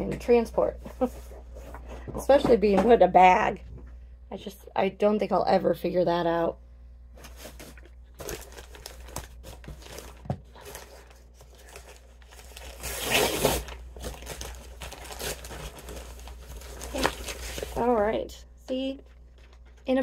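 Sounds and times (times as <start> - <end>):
paper bag rustling and crinkling: 7.2 - 18.1.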